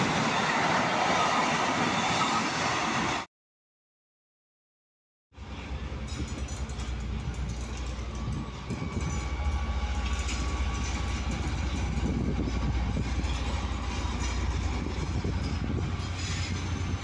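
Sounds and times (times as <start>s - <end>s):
diesel locomotive engine rumble: 5.4s - 17.0s.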